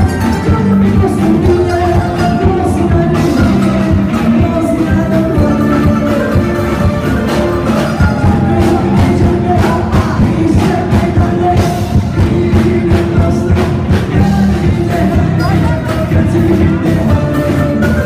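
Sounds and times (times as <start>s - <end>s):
melody line: 0.0s - 11.9s
live band playing dance music: 0.0s - 18.0s
steady drum beat: 0.0s - 18.0s.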